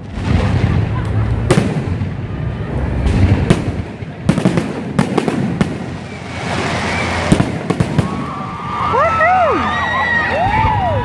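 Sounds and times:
firework hiss: 3.2 - 8.9.

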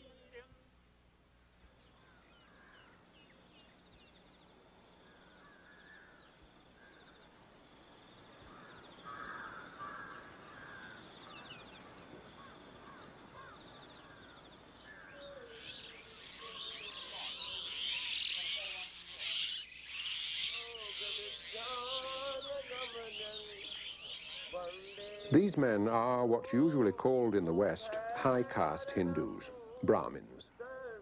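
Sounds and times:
birds chirping: 1.6 - 31.0
crows cawing: 2.0 - 3.1, 5.0 - 7.2, 8.4 - 25.0.

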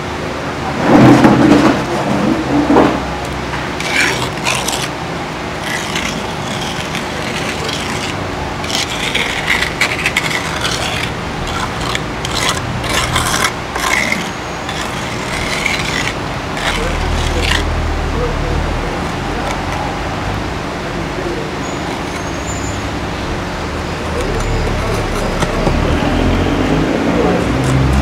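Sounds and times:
trowel scraping wet mortar: 3.8 - 17.7, 19.0 - 19.9, 21.7 - 22.9, 24.0 - 26.3, 27.3 - 28.0.

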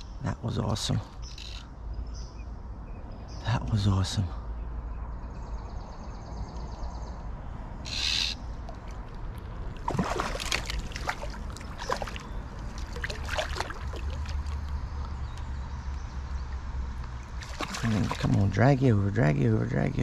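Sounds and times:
fish splashing in water: 8.6 - 14.8, 17.2 - 18.4.

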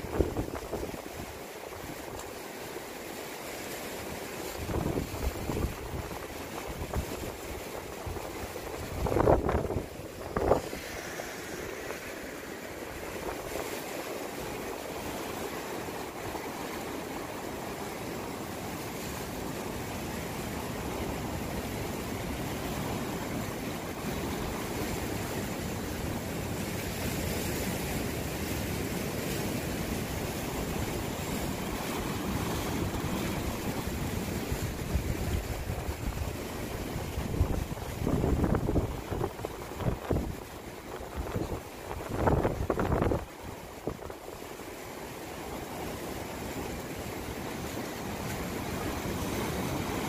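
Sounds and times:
wind buffeting microphone: 0.0 - 1.3, 4.6 - 10.9, 30.4 - 44.2
surf washing over rocks: 0.0 - 50.0.

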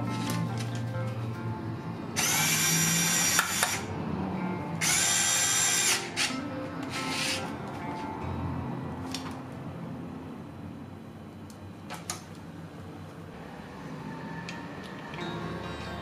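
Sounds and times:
electric screwdriver whining: 2.2 - 3.9, 4.8 - 6.3.

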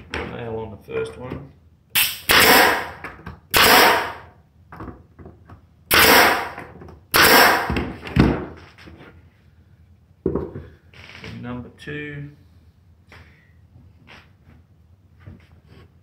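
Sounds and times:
nail gun firing into wood: 2.0 - 4.3, 5.9 - 8.5.

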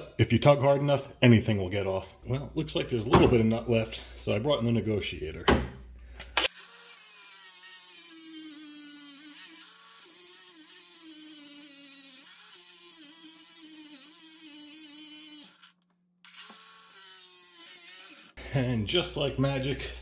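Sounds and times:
angle grinder grinding steel: 6.4 - 18.4.

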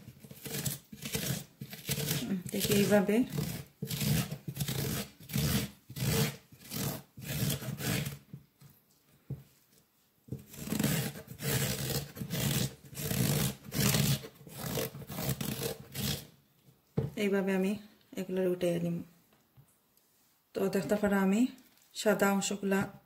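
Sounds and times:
spoon scraping vegetable core: 0.0 - 9.0, 10.3 - 16.3.

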